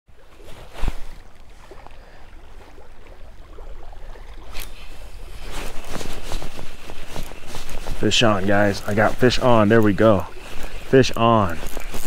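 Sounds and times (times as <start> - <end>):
sharp rustle: 0.4 - 1.2, 4.5 - 12.0
fishing reel handling noise: 4.5 - 5.0, 5.6 - 12.0.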